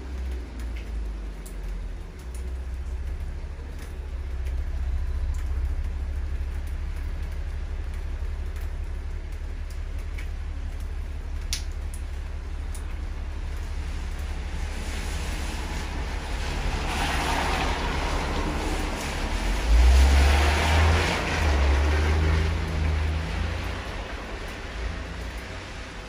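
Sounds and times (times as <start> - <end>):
faint ticks of drips: 0.0 - 14.4, 22.5 - 26.0
rain hiss: 0.0 - 26.0.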